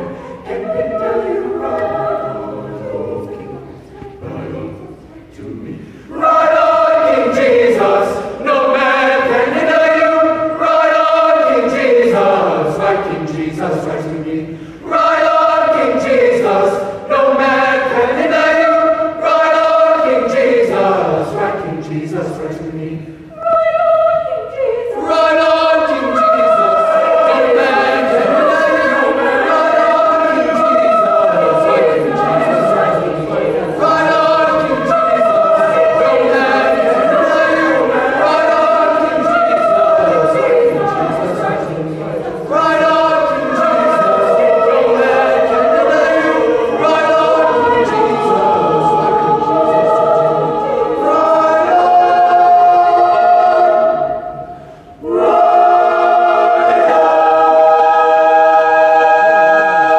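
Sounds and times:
choir singing a cappella: 0:00.0 - 0:59.9.

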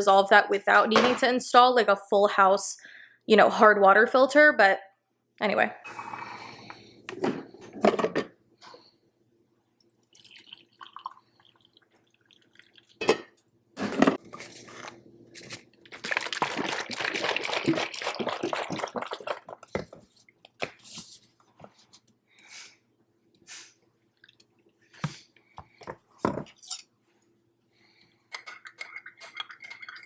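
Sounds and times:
liquid sloshing and splashing: 0:10.0 - 0:13.0, 0:15.9 - 0:20.4.

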